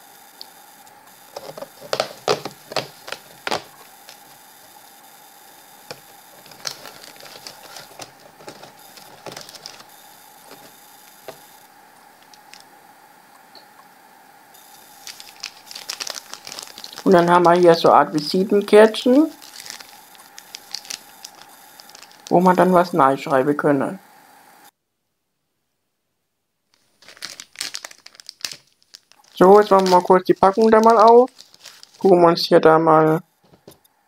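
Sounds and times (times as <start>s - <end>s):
plastic sleeve rustling: 1.2s - 4.8s, 5.8s - 11.5s, 12.2s - 12.6s, 14.6s - 22.9s, 26.7s - 32.2s.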